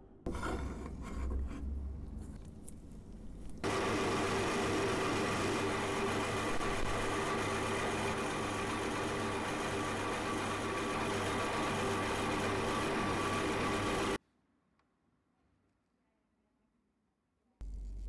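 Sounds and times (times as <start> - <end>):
milling machine hum: 3.6 - 14.2.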